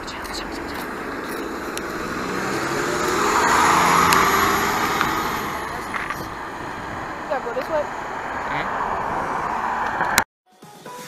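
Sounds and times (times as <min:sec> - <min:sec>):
diesel bus engine pulling away: 0:00.0 - 0:10.0.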